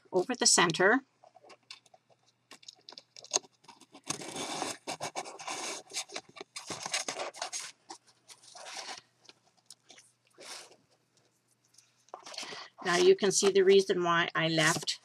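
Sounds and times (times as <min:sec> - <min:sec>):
paper scratching and scraping: 0:03.4 - 0:09.0, 0:12.2 - 0:13.6.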